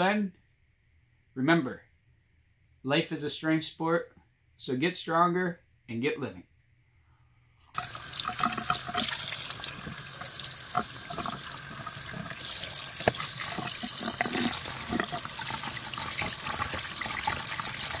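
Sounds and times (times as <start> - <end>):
faucet running into metal sink: 7.8 - 18.0
water splashing in plastic cup: 7.8 - 18.0
plastic cup knocking: 10.7 - 17.4.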